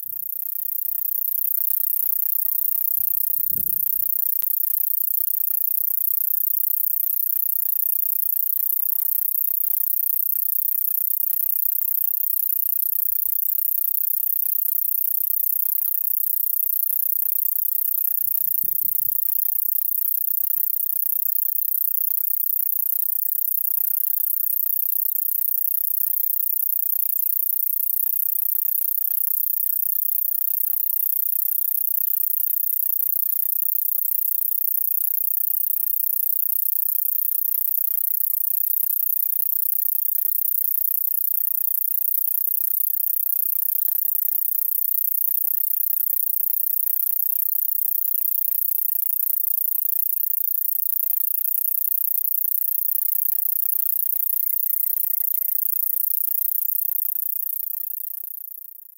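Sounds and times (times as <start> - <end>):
cicada high-pitched buzz: 0.0 - 58.9.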